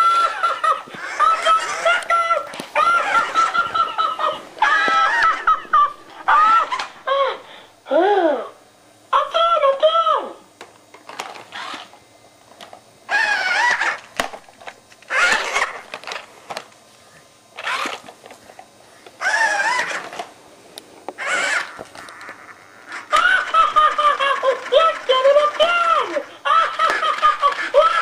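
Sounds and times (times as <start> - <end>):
toddler squealing: 2.8 - 3.4.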